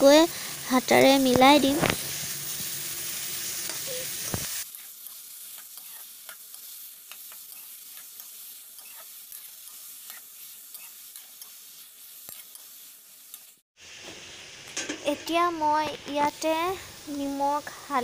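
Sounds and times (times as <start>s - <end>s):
vegetables sizzling in hot oil: 0.0s - 18.0s
metal spatula scraping a pan: 4.7s - 13.5s.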